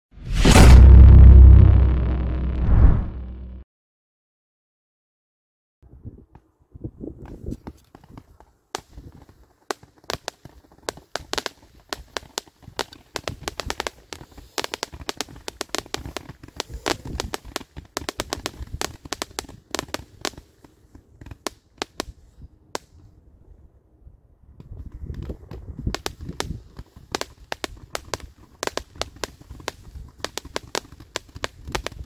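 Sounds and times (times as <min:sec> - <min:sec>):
firework cake popping: 0:07.4 - 0:22.2, 0:24.6 - 0:32.0.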